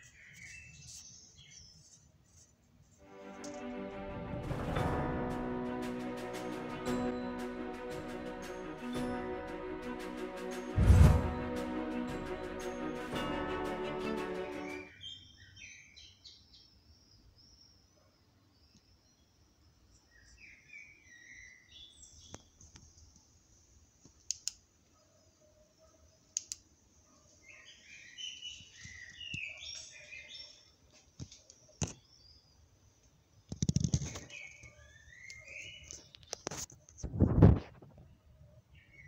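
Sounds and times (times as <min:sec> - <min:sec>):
small birds chirping: 0:00.0 - 0:02.4, 0:14.6 - 0:23.4, 0:24.0 - 0:36.6
brief low rumble: 0:10.8 - 0:11.5
sharp clicks: 0:24.0 - 0:24.6, 0:26.3 - 0:26.7.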